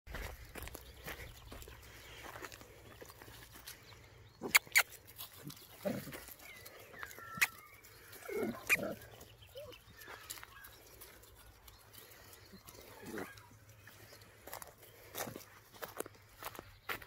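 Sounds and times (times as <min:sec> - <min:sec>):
puppies grunting and growling: 0:04.4 - 0:13.9.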